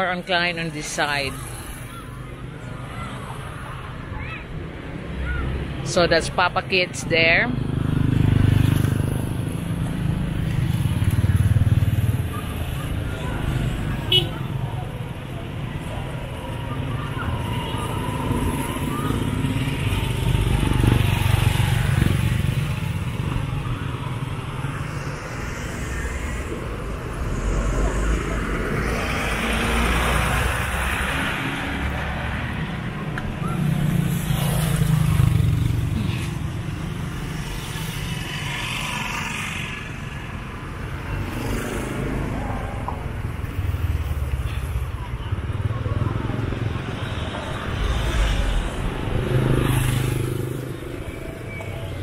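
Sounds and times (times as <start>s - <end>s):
road traffic rumble: 0.0s - 52.0s.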